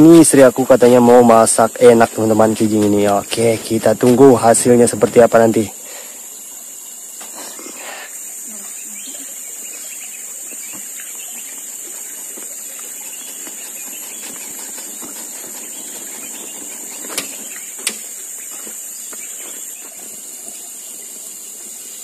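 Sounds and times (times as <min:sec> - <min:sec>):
high-pitched insect chorus: 0:00.0 - 0:22.0
sharp pops: 0:17.1 - 0:18.1.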